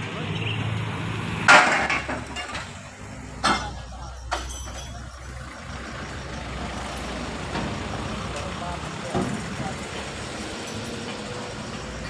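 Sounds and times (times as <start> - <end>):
vehicle engine running: 0.0 - 12.0
scrap iron clanking: 1.5 - 5.5.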